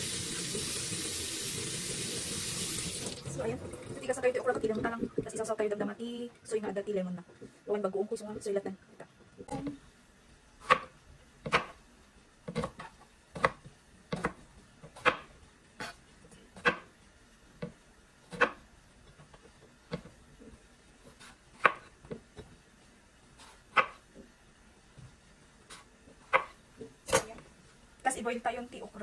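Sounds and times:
knife chopping on cutting board: 10.6s - 11.8s, 12.5s - 16.0s, 21.1s - 22.2s, 23.4s - 24.0s, 25.7s - 27.3s.

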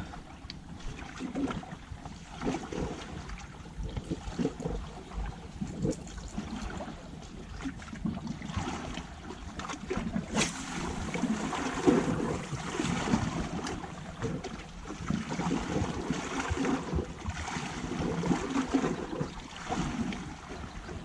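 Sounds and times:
sea washing against rocks: 9.9s - 21.0s
wind buffeting microphone: 10.0s - 21.0s.

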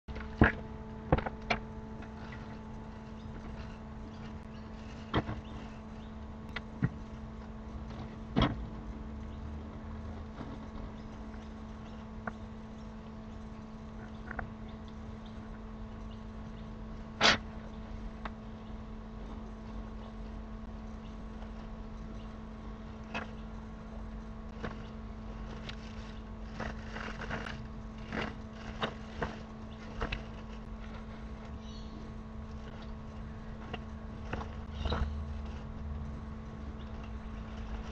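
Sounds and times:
electrical hum: 0.0s - 37.9s
camera knocking and scraping in pipe: 24.5s - 31.5s.

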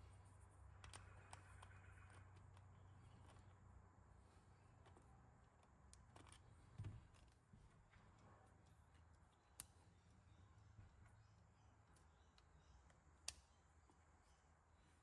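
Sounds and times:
handling plastic parts: 0.0s - 9.7s.

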